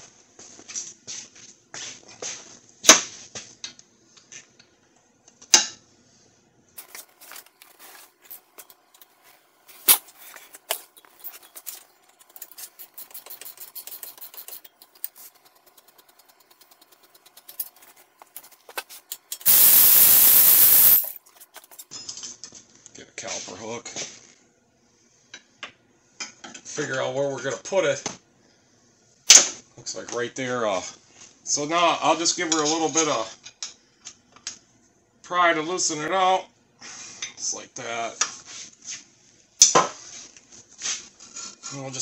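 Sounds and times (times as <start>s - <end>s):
tools and parts clinking: 6.8s - 22.3s.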